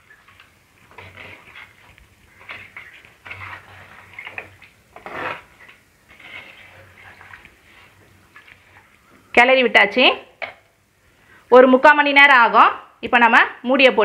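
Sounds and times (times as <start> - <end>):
wooden spatula scraping in curry: 0.2 - 9.0.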